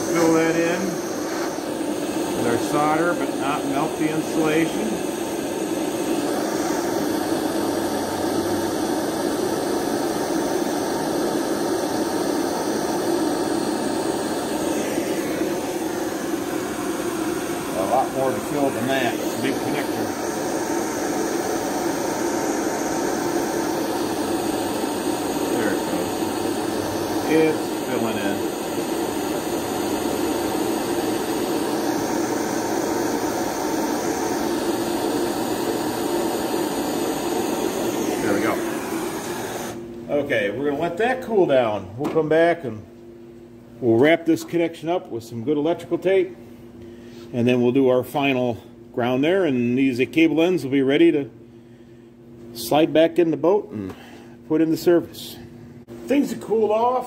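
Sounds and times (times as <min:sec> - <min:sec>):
propane torch hissing: 0:00.0 - 0:40.2.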